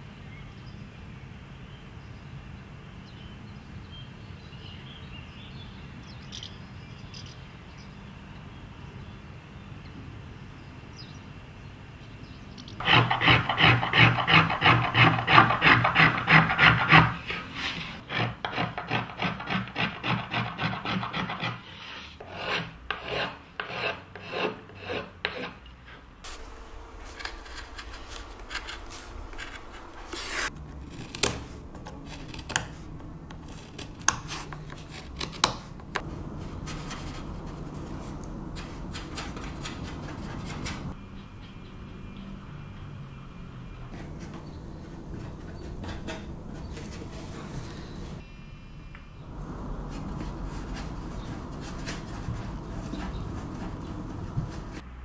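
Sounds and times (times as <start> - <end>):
hand tools rasping wood: 12.8 - 32.8, 49.8 - 54.8.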